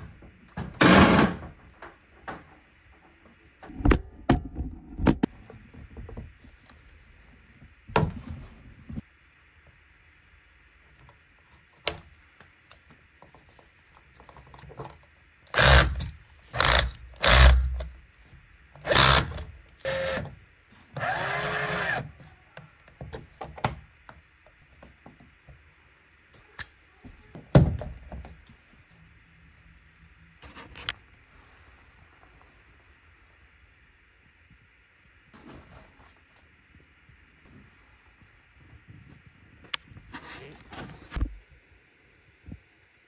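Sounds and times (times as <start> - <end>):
small power drill running: 15.5 - 17.8, 18.8 - 20.3, 21.0 - 22.1.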